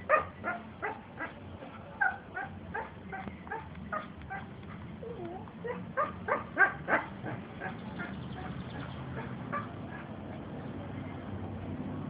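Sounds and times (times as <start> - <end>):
dog yipping and whining: 3.5 - 7.1.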